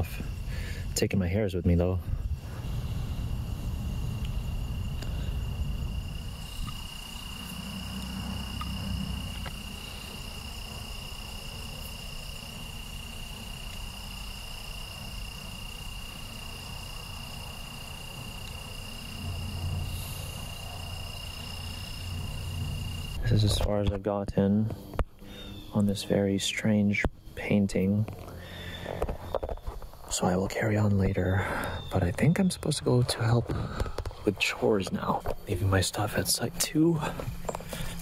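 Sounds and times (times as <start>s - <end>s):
crickets trilling: 0.0s - 38.0s
low rumble: 2.0s - 10.4s, 18.2s - 23.7s.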